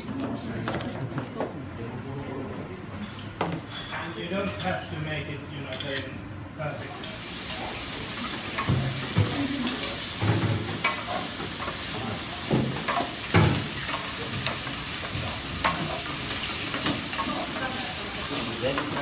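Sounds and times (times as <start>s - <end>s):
meat sizzling in pans: 6.8s - 19.0s.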